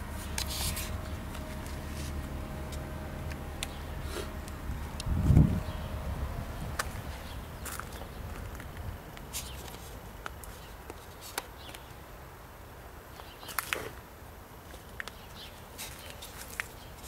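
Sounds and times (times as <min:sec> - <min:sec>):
steady low rumble: 0:00.0 - 0:09.3.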